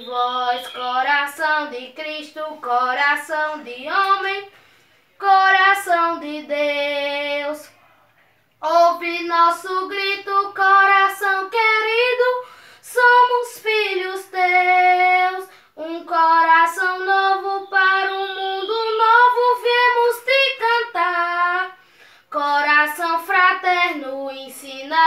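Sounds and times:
high voice singing a hymn: 0:00.0 - 0:07.9, 0:08.6 - 0:25.0
breaths: 0:04.5 - 0:05.2, 0:12.4 - 0:12.9, 0:15.4 - 0:15.8, 0:21.8 - 0:22.3.

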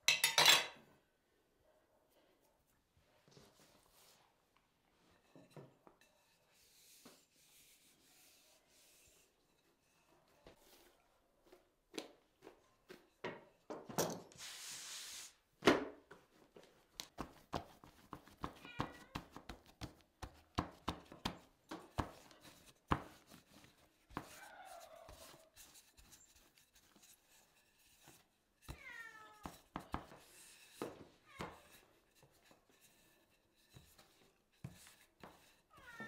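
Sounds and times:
hands slapping dough: 0:16.9 - 0:26.5.

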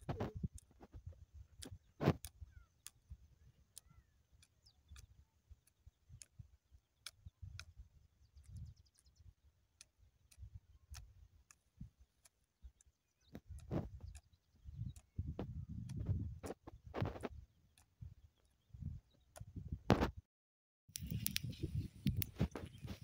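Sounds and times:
wind rumble on microphone: 0:00.0 - 0:02.6, 0:13.5 - 0:20.2, 0:20.9 - 0:23.0
sharp clicks: 0:00.0 - 0:03.1, 0:09.8 - 0:18.0, 0:20.9 - 0:23.0.

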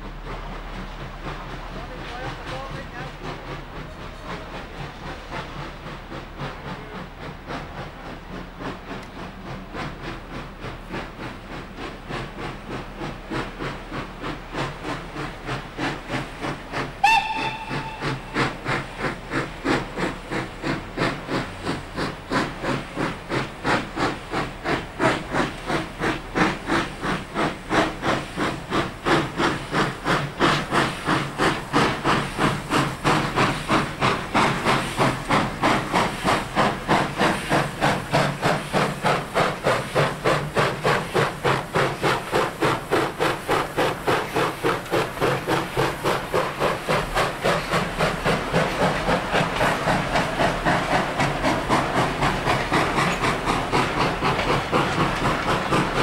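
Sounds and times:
steam locomotive chuffing: 0:00.0 - 0:56.0
steam whistle blast: 0:17.0 - 0:18.4.

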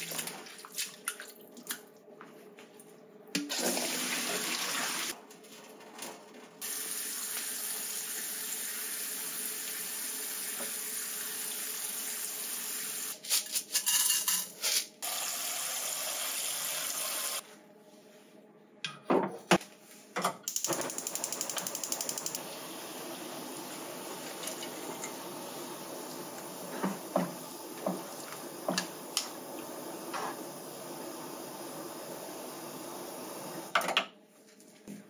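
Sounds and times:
steady hiss: 0:21.4 - 0:33.7.

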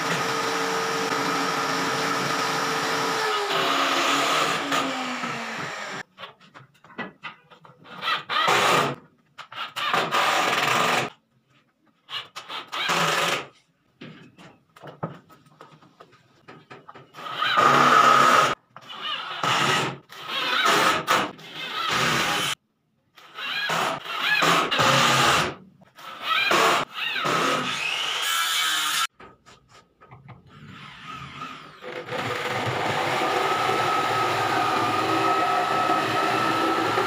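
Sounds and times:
drill running against wood: 0:00.0 - 0:06.0, 0:31.0 - 0:37.0.

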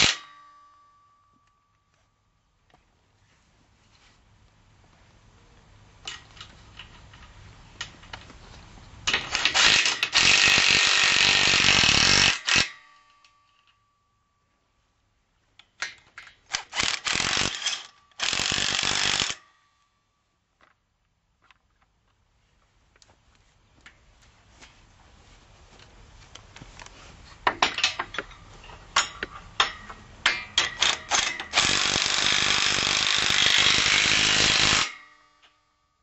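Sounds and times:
cordless drill driving bolts: 0:09.1 - 0:12.7, 0:16.5 - 0:19.4, 0:30.6 - 0:35.0
drill clicks: 0:09.1 - 0:12.7, 0:16.5 - 0:19.4, 0:30.5 - 0:35.0.

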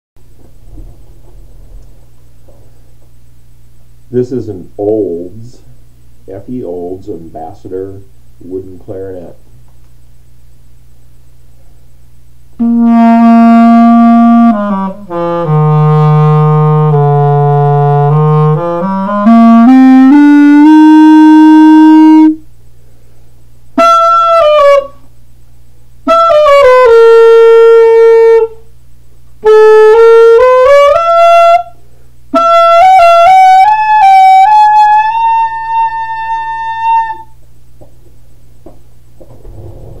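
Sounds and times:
clarinet held notes: 0:12.6 - 0:22.4, 0:29.4 - 0:37.4.

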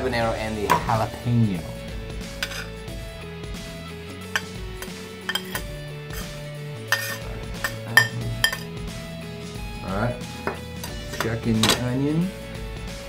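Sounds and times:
background music: 0:00.0 - 0:13.0
knife scraping ceramic plate: 0:02.4 - 0:02.7, 0:04.4 - 0:08.6.

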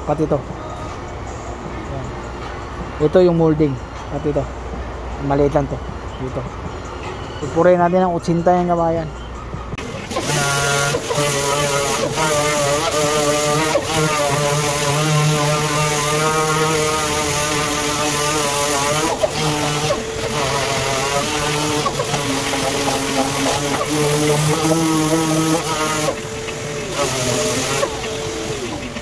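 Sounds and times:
orbital sander whine: 0:09.8 - 0:29.0.

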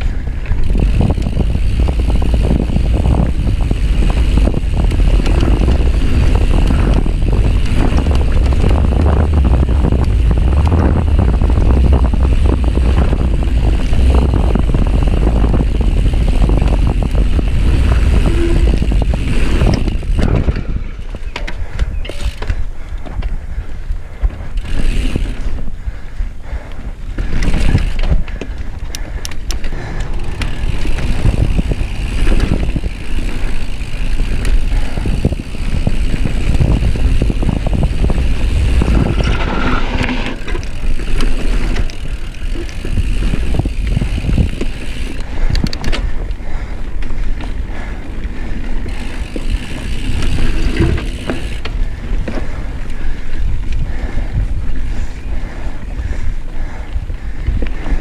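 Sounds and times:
bike clicks and rattles: 0:00.0 - 0:58.0
wind buffeting microphone: 0:00.0 - 0:58.0
tyres rolling over dirt: 0:29.4 - 0:46.2.

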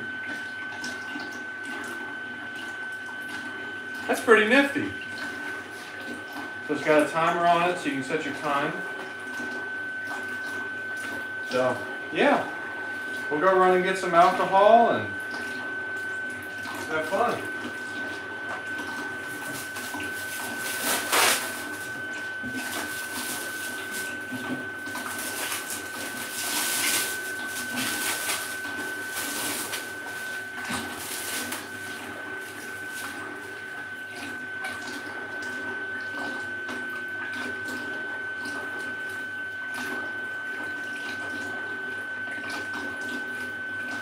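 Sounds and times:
water swishing in tank: 0:00.0 - 0:44.0
thin high whine: 0:19.2 - 0:33.8
plastic wrap crinkling: 0:19.3 - 0:22.0, 0:22.6 - 0:33.2.

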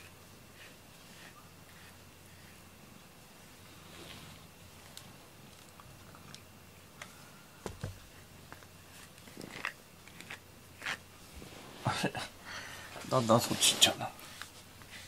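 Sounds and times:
brush rustling on cat fur: 0:00.0 - 0:02.7, 0:03.4 - 0:05.0, 0:13.0 - 0:15.0.

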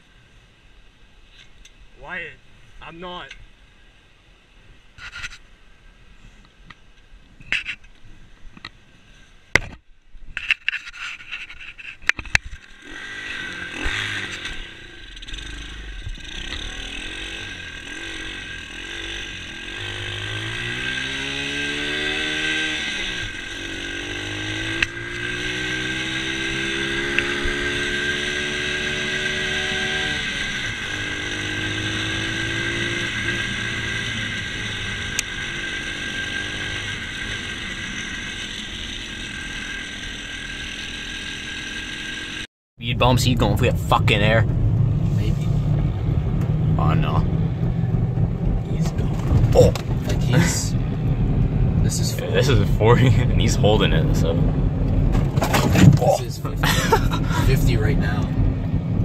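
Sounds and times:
motorbike engine revving: 0:12.6 - 0:59.0.

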